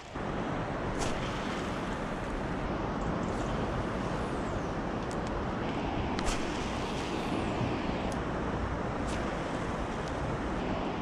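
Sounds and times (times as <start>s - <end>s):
steady outdoor rushing roar: 0.0s - 11.0s.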